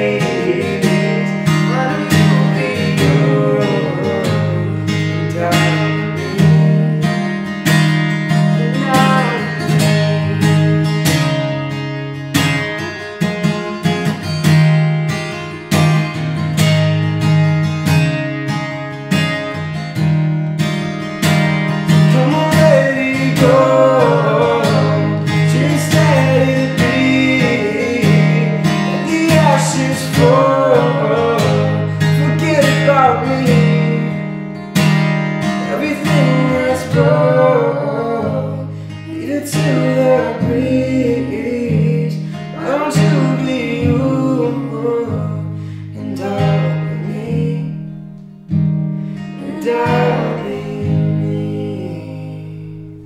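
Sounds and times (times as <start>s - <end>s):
person singing: 0.0s - 7.5s, 8.4s - 10.7s, 22.0s - 34.4s, 35.5s - 47.8s, 49.3s - 52.9s
acoustic guitar strumming: 0.0s - 53.0s.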